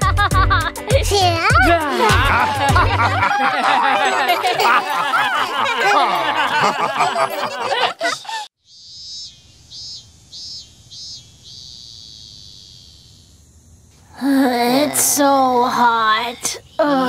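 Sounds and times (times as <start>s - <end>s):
cartoon song with voices: 0.8s - 6.4s
high-pitched insect chirping: 8.6s - 17.0s.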